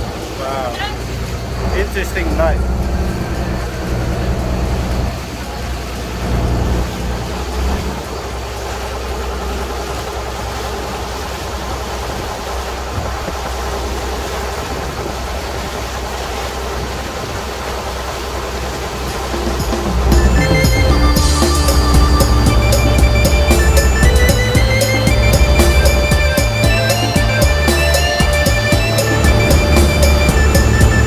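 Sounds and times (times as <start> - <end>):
boat engine running: 0.0 - 31.0
rushing noise: 18.4 - 31.0.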